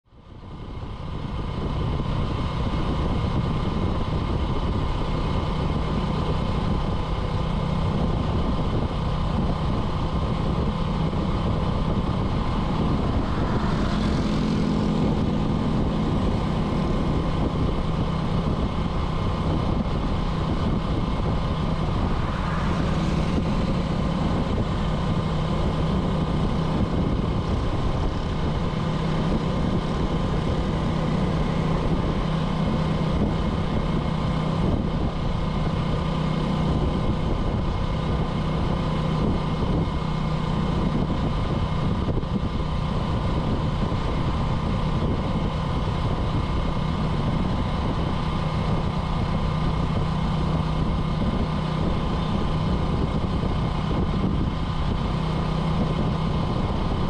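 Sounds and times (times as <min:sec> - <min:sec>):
motorcycle engine drone: 0:00.0 - 0:57.0
road noise: 0:00.0 - 0:57.0.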